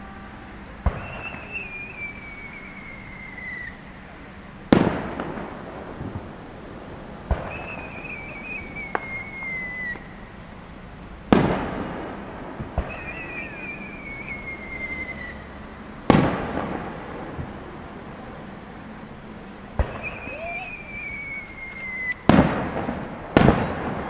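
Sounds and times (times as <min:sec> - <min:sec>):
firework whistle falling in pitch: 0:00.0 - 0:04.0, 0:07.3 - 0:10.2, 0:12.8 - 0:15.8, 0:19.8 - 0:22.4
firework launch thump: 0:00.8 - 0:01.6
firework bursting with loud bang: 0:00.8 - 0:04.0, 0:04.6 - 0:10.2, 0:11.2 - 0:18.6, 0:19.7 - 0:24.0.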